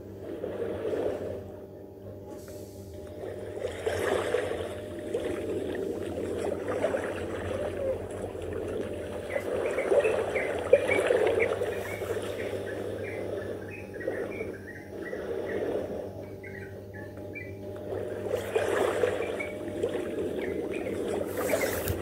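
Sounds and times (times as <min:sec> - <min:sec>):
birds chirping: 0:07.4 - 0:22.0
seawater washing over sand: 0:17.9 - 0:22.0.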